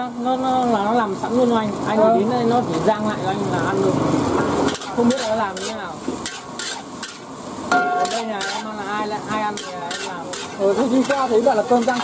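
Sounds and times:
oil sizzling: 0.0s - 12.0s
metal ladle scraping a wok: 4.2s - 12.0s.

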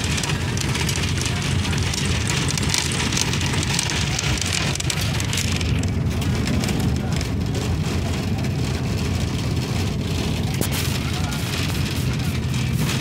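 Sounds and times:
bus engine and road rumble: 0.0s - 13.0s
hiss of wind and tyres: 10.6s - 13.0s.

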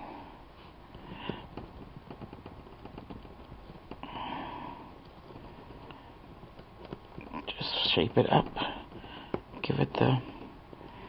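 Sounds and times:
metal stylus tapping and rubbing paper: 1.2s - 4.0s, 5.0s - 9.8s.

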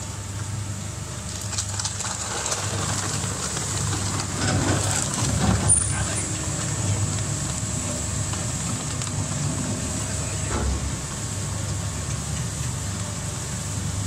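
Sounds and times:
shredder grinding plastic: 1.3s - 7.3s.

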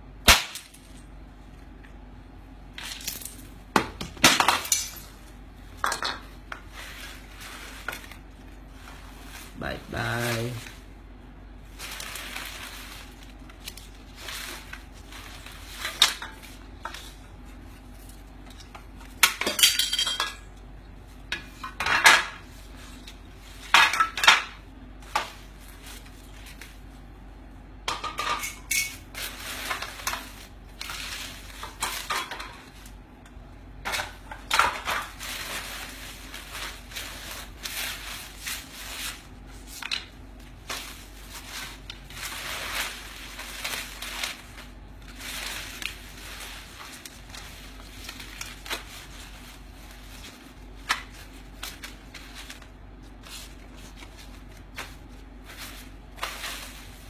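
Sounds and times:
paper banknotes rustling: 6.6s - 10.9s, 11.6s - 19.1s, 25.2s - 27.1s, 29.0s - 33.0s, 33.9s - 57.0s.

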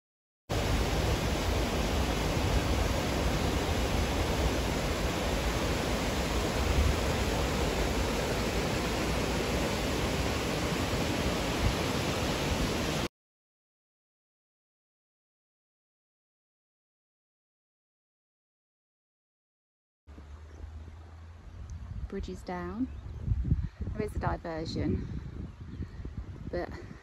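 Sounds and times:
waterfall and stream rushing: 0.5s - 13.1s.

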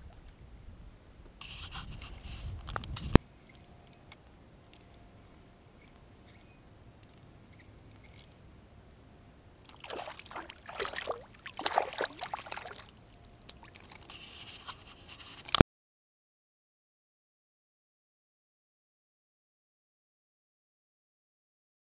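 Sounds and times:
water splashing and sloshing: 9.6s - 15.6s.

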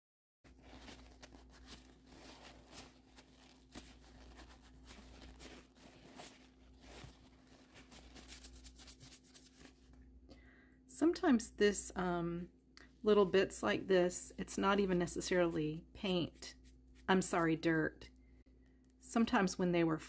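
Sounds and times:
paper towel crinkling: 0.5s - 10.0s
low steady hum: 0.5s - 20.0s.

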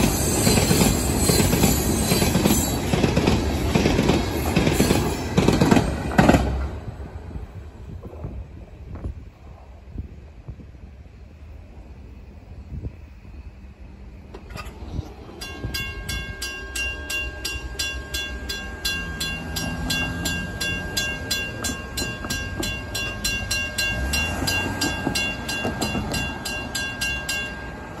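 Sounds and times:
railroad crossing bell ringing: 0.0s - 5.6s, 15.2s - 28.0s.

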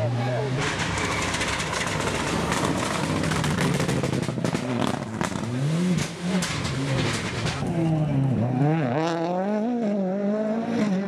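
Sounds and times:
rally car engine revving: 0.0s - 11.0s
sharp exhaust cracks and pops: 0.6s - 7.7s.

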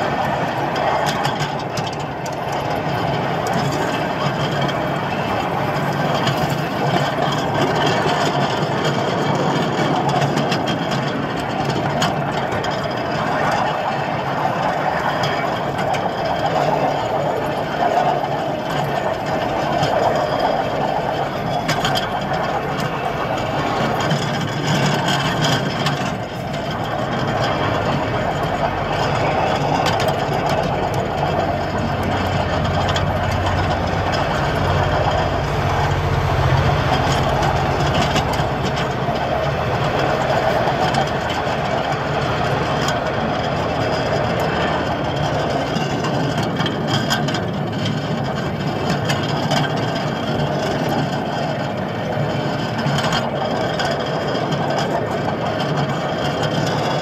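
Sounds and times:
miniature locomotive engine running: 0.0s - 57.0s
wheels clicking on rails: 0.0s - 57.0s.

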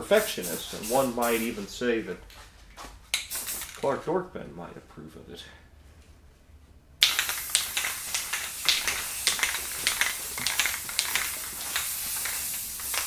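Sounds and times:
spray paint can hissing: 0.0s - 1.6s, 3.2s - 3.8s, 7.0s - 13.0s.

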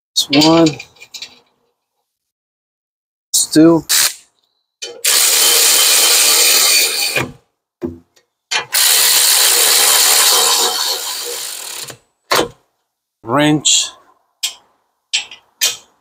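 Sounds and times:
electric ratchet motor running: 5.0s - 7.3s, 8.7s - 12.0s.

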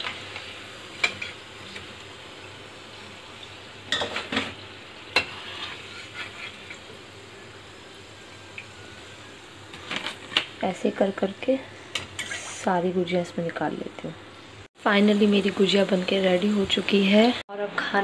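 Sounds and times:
food sizzling in hot oil: 0.0s - 18.0s
metal spoon scraping a pan: 5.1s - 6.9s, 11.9s - 12.6s.

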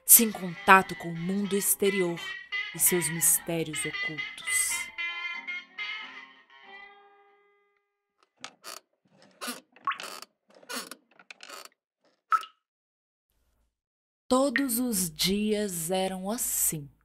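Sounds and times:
guitar music: 0.0s - 8.0s
clock ticking: 0.1s - 4.9s.

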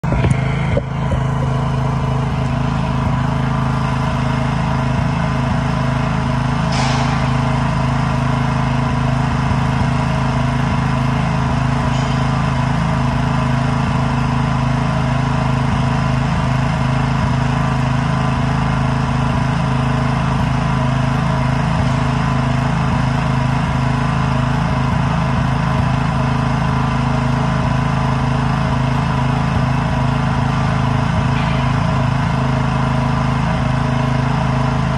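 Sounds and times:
small engine running steadily: 0.0s - 34.9s
brief hiss: 6.7s - 7.2s.

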